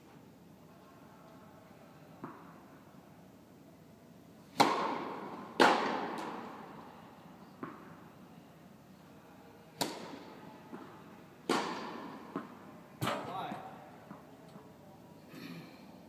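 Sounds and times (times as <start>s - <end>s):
racket striking tennis ball: 4.5s - 6.6s, 9.8s - 13.3s.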